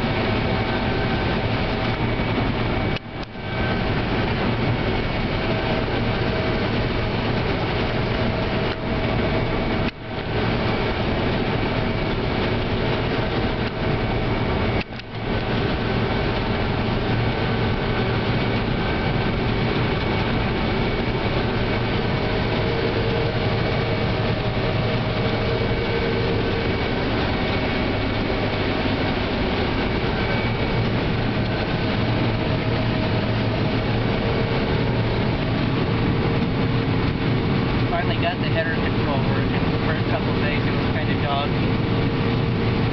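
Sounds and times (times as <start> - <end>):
combine harvester engine drone: 0.0 - 42.9
machinery whining tones: 0.0 - 42.9.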